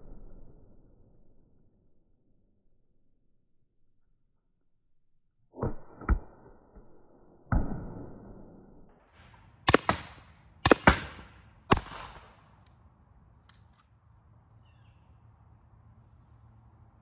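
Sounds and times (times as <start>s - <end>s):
paintball marker shots: 9.2s - 12.8s.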